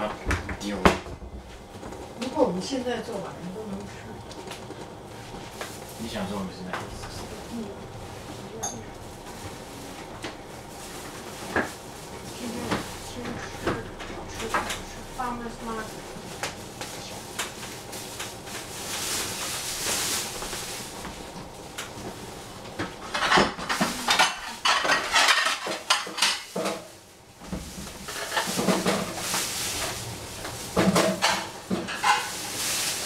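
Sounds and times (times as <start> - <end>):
dishes and cutlery clinking: 8.6 - 9.0, 23.0 - 26.9, 30.8 - 32.6.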